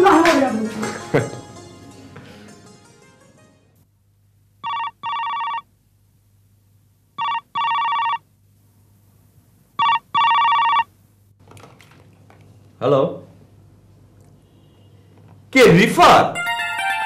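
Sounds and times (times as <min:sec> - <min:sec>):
electronic telephone ring: 0:04.6 - 0:05.7, 0:07.2 - 0:08.2, 0:09.8 - 0:10.9.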